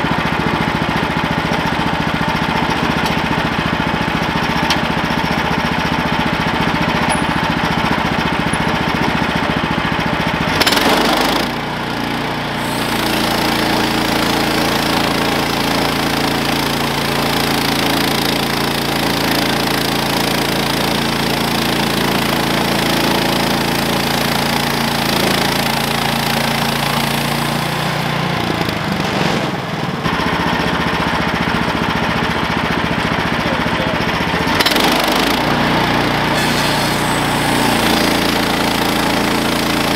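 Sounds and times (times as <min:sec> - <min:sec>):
small gasoline engine running hard: 0:00.0 - 0:39.9
band blade cutting log: 0:12.5 - 0:14.9, 0:24.7 - 0:28.8, 0:34.6 - 0:39.9.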